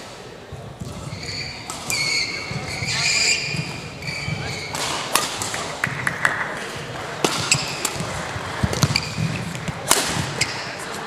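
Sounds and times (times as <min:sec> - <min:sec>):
shoes squeaking on court: 0:00.8 - 0:05.5, 0:07.2 - 0:11.0
rackets striking shuttlecock: 0:00.8 - 0:11.0.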